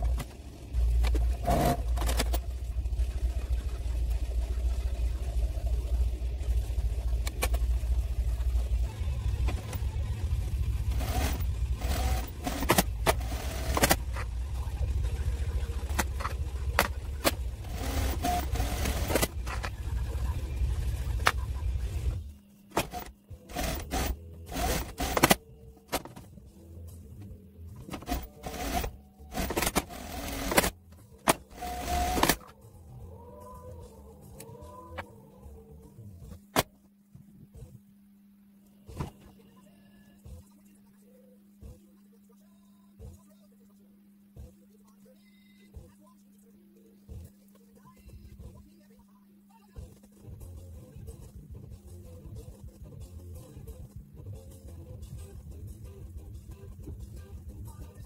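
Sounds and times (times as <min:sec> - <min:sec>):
sewing machine humming: 0:00.0 - 0:25.4, 0:27.9 - 0:32.5.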